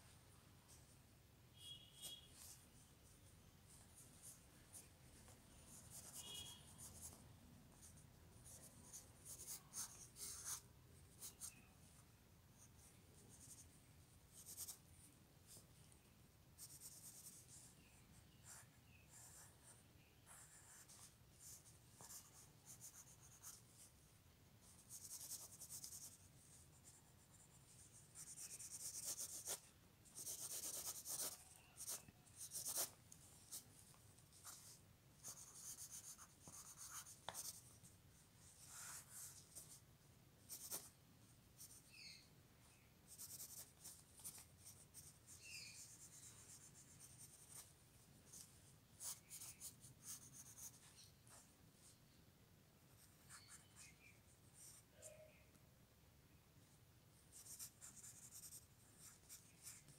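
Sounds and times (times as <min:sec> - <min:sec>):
pencil scratching on paper: 0:05.7 - 0:07.2, 0:07.8 - 0:10.6, 0:14.3 - 0:14.8, 0:16.6 - 0:17.7, 0:18.4 - 0:23.9, 0:24.7 - 0:33.6, 0:34.3 - 0:37.8, 0:38.4 - 0:39.8, 0:40.5 - 0:40.9, 0:43.1 - 0:47.7, 0:48.3 - 0:51.4, 0:57.3 - 0:59.9.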